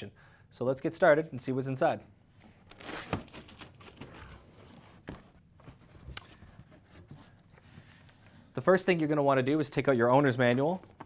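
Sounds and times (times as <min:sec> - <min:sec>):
cardboard rustling and scraping: 0:03.0 - 0:08.4.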